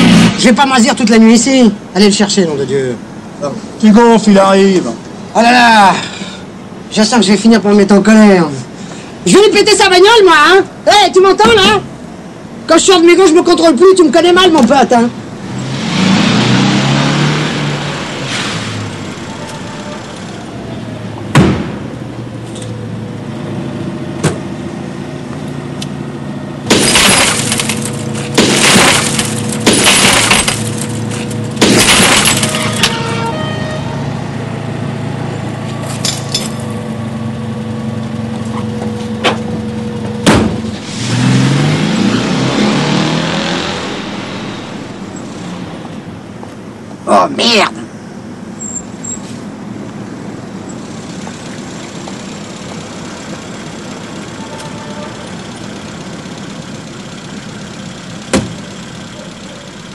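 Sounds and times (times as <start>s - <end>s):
car passing: 14.8s - 47.3s
car being smashed: 26.6s - 33.3s, 40.2s - 41.0s
glass shattering: 26.7s - 33.1s.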